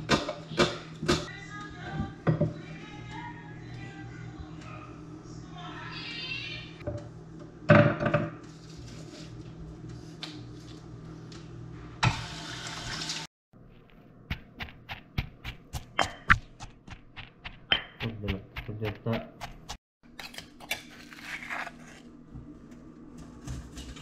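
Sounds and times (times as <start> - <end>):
mortar and pestle pounding: 14.2 - 19.8.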